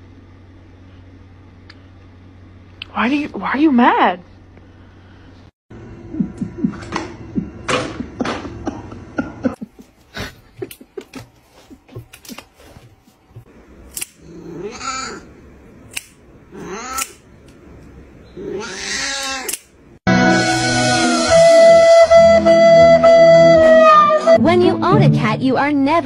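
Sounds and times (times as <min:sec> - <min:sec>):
music: 0:20.1 - 0:26.0.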